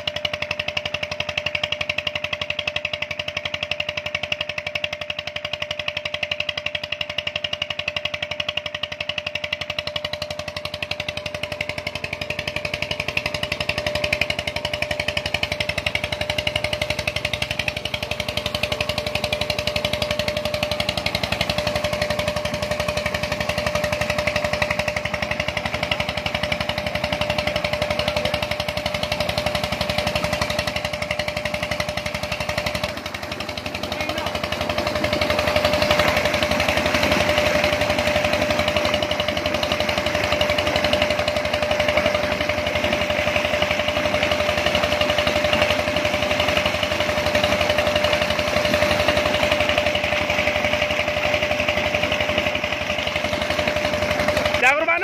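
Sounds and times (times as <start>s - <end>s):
diesel engine chugging: 0.0s - 55.0s.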